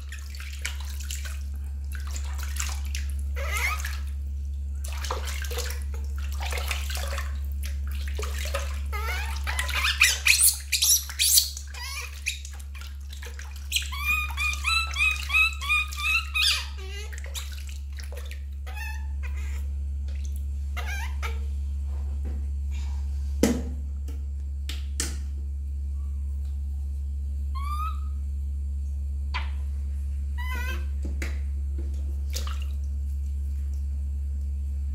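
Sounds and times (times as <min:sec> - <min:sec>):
water drips: 0:00.0 - 0:18.6
water splashing in metal basin: 0:00.0 - 0:18.6, 0:32.2 - 0:33.0
low steady hum: 0:00.0 - 0:34.9
baby monkey squeaking: 0:03.4 - 0:04.0, 0:08.9 - 0:12.5, 0:13.7 - 0:17.4, 0:18.6 - 0:19.6, 0:20.8 - 0:21.4, 0:27.6 - 0:28.2, 0:30.4 - 0:30.9.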